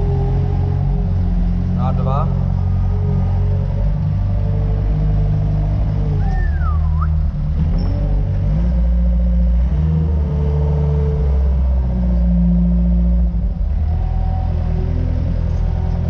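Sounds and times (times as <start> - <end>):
loader engine running: 0.0 - 16.0
short gliding squeal: 6.2 - 8.2.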